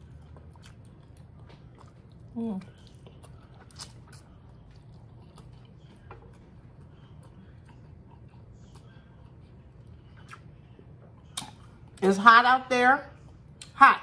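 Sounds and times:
wet chewing: 0:00.0 - 0:12.0
steady low hum: 0:00.0 - 0:14.0
small mouth clicks: 0:10.2 - 0:10.5.

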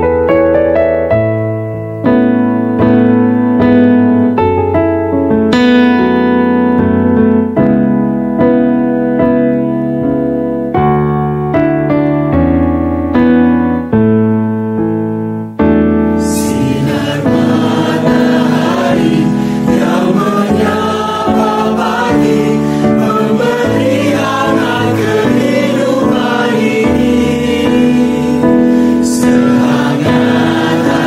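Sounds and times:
keyboard playing slow chords: 0:00.0 - 0:31.0
mixed choir singing: 0:16.2 - 0:31.0.

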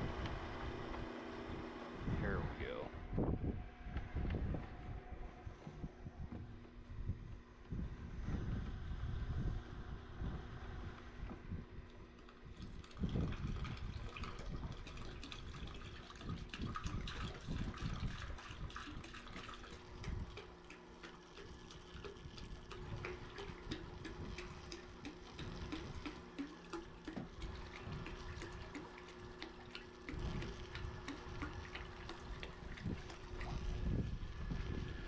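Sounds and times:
wind rumble on microphone: 0:00.0 - 0:20.4, 0:27.2 - 0:28.8, 0:30.1 - 0:35.0
faint steady hum: 0:00.0 - 0:35.0
liquid trickling and gurgling in tank: 0:11.3 - 0:35.0.

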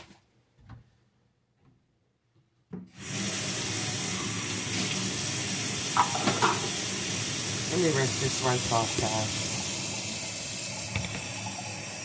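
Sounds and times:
faucet water running into sink: 0:03.0 - 0:12.0.

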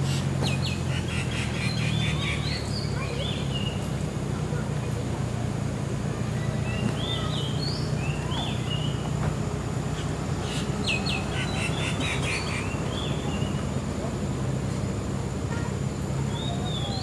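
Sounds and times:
birds whistling and chirping: 0:00.0 - 0:03.9, 0:06.3 - 0:09.2, 0:09.9 - 0:13.7, 0:16.3 - 0:17.0.

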